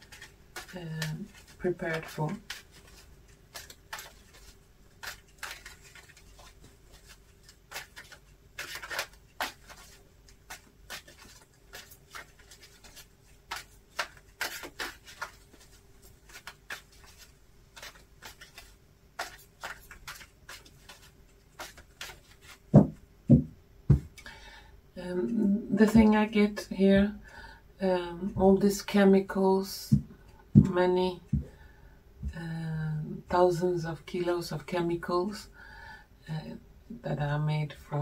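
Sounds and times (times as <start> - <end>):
cards being shuffled: 0.0 - 24.3.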